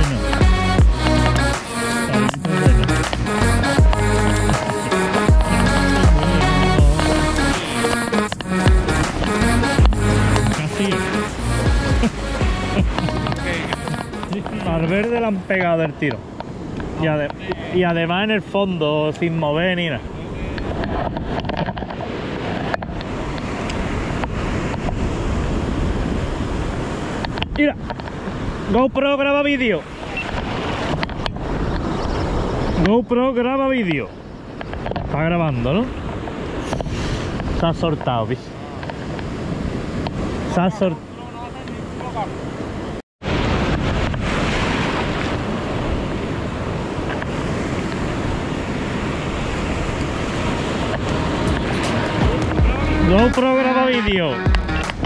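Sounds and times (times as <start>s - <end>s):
wind rumbling on microphone: 0.0s - 53.4s
surf washing on shore: 0.0s - 55.0s
sharp click: 1.0s - 3.3s.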